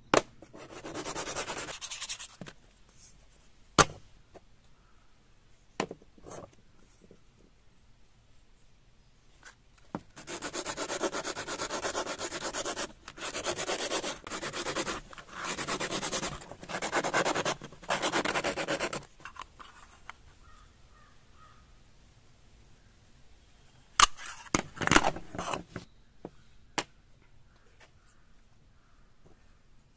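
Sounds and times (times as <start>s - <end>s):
sandpaper rubbing coconut shell: 10.2s - 19.1s.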